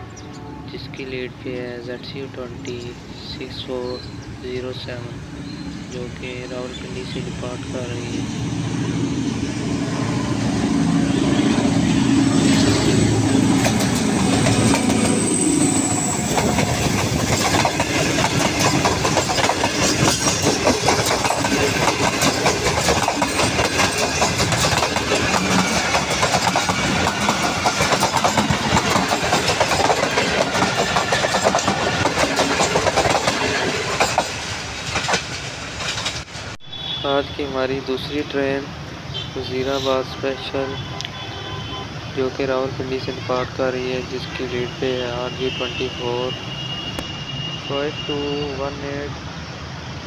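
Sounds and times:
diesel locomotive engine running: 0:01.7 - 0:35.8
train wheels clacking on rail joints: 0:12.3 - 0:36.3.

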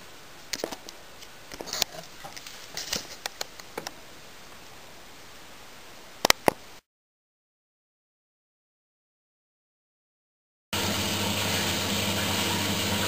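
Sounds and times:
washing machine hiss: 0:10.8 - 0:13.0.

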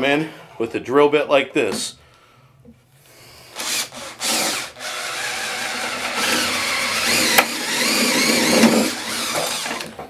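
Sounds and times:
power drill boring through wood: 0:03.5 - 0:10.0.

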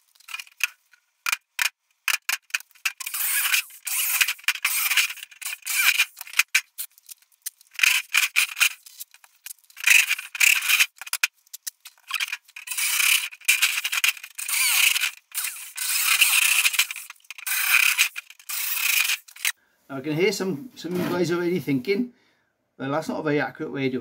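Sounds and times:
electric drill boring through steel: 0:02.9 - 0:06.3, 0:12.1 - 0:19.5.

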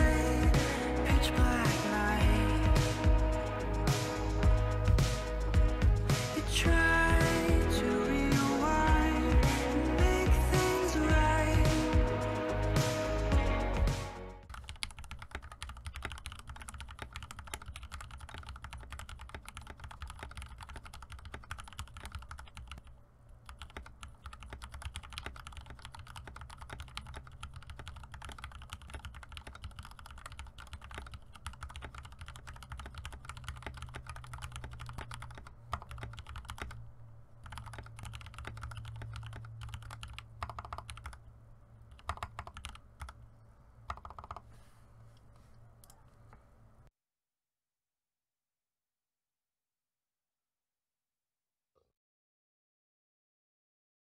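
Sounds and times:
mechanical keyboard typing: 0:14.4 - 0:36.8, 0:37.4 - 0:41.2, 0:41.9 - 0:43.2, 0:43.9 - 0:44.5.

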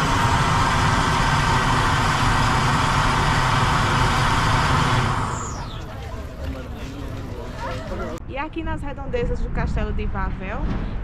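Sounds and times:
gas flame jet roaring: 0:00.0 - 0:08.2.

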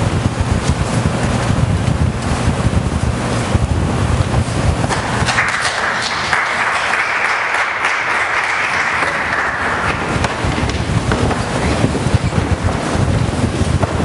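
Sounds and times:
congregation applauding: 0:04.9 - 0:11.6
low rumble: 0:09.5 - 0:14.0.

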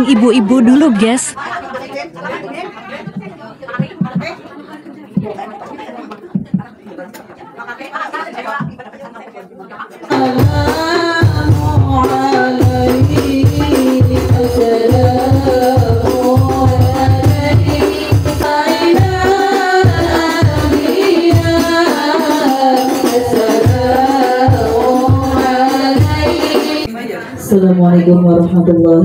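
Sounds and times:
frame drums: 0:03.0 - 0:04.4, 0:06.3 - 0:06.8, 0:10.1 - 0:26.9
women singing devotional song: 0:10.1 - 0:29.0.

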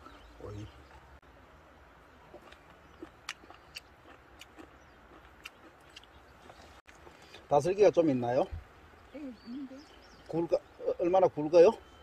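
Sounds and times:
person chewing food: 0:02.3 - 0:07.4.

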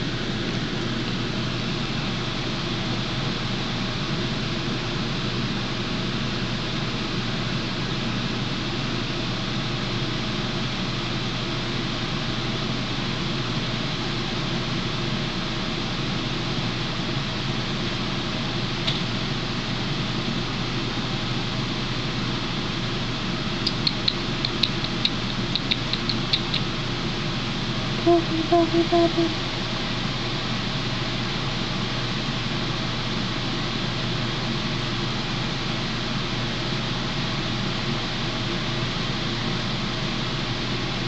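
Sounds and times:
fan-like hiss: 0:00.0 - 0:41.0
light high ticks: 0:23.6 - 0:26.7
low hum: 0:28.0 - 0:29.6.

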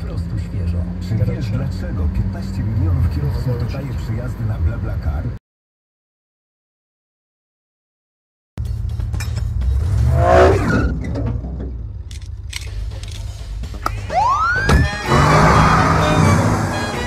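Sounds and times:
low engine rumble: 0:08.6 - 0:14.2
film music: 0:12.4 - 0:17.0
rising siren whoop: 0:14.1 - 0:17.0.

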